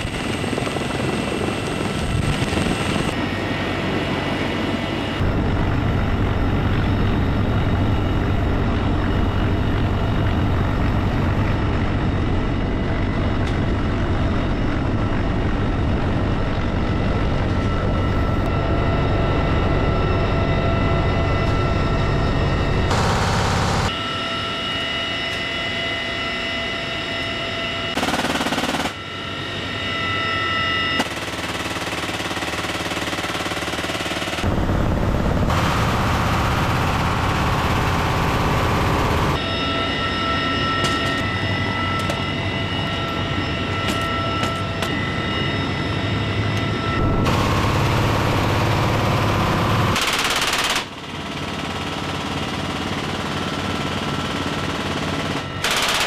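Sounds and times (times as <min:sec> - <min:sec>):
helicopter whine: 0:00.0 - 0:56.0
machine guns firing: 0:28.0 - 0:29.0, 0:31.0 - 0:39.4, 0:47.2 - 0:50.9, 0:53.9 - 0:56.0.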